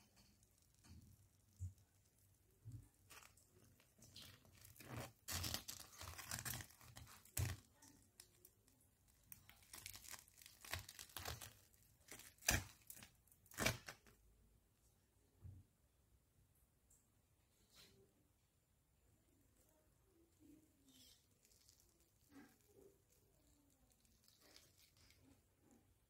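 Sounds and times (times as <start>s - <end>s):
crispy food scraping in frying pan: 3.0s - 7.6s, 20.8s - 25.2s.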